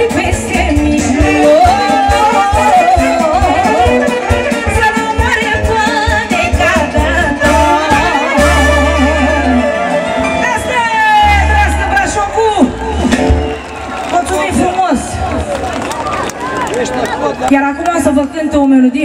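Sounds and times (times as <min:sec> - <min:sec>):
folk music with ornamented melody: 0:02.6 - 0:11.5.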